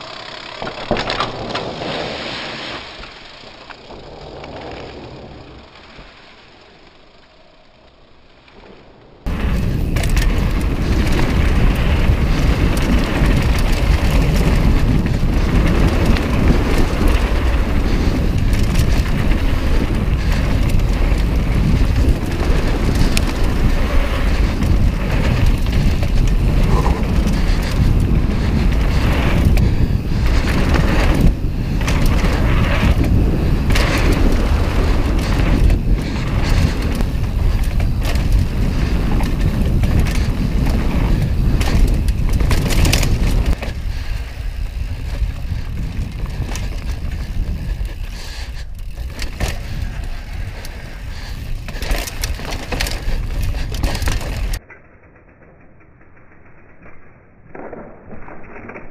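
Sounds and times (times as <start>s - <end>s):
bike tyres rumbling on dirt: 0.0s - 54.8s
bike knocking and rattling: 0.0s - 58.9s
wind on microphone: 9.2s - 54.6s.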